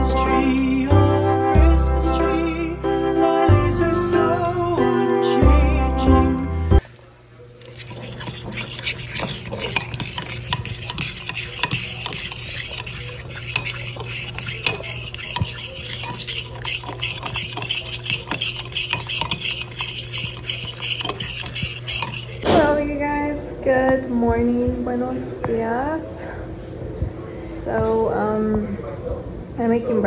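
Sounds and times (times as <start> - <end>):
fork scraping batter: 7.5 - 22.5
fork clinking against glass: 7.6 - 22.5.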